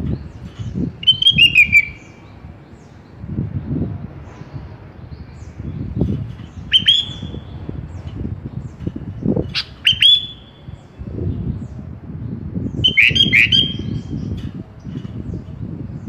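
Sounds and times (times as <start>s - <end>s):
low rumbling background noise: 0.0s - 16.0s
bulbul calling: 0.5s - 2.4s, 6.5s - 8.0s, 9.4s - 10.9s, 12.8s - 14.4s.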